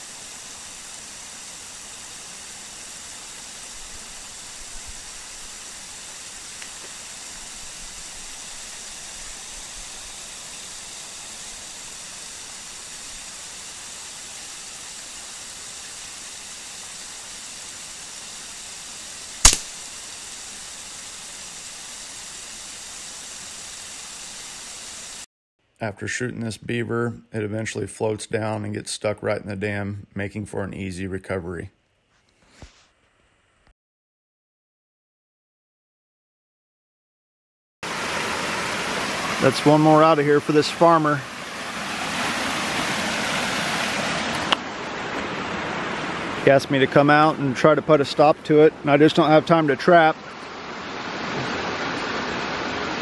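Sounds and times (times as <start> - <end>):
steady hiss: 0.0 - 30.2, 37.8 - 45.2, 46.4 - 53.0
rifle shot: 19.4 - 19.8.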